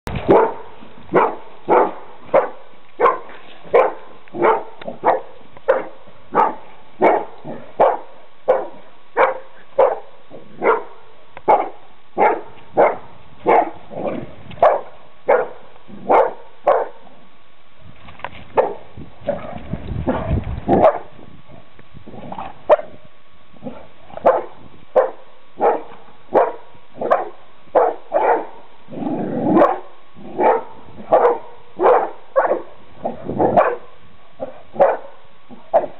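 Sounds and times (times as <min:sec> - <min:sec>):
dog barking: 0:00.3 - 0:13.8, 0:14.6 - 0:17.0, 0:18.6 - 0:18.8, 0:20.1 - 0:21.1, 0:22.7 - 0:23.0, 0:23.6 - 0:28.6, 0:29.6 - 0:35.9.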